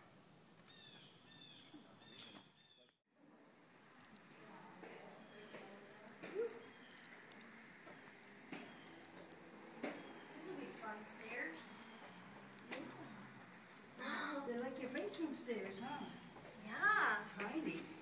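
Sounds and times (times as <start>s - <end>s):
faint distant voices: 3.1s - 18.0s
insect chorus trilling: 5.2s - 17.4s.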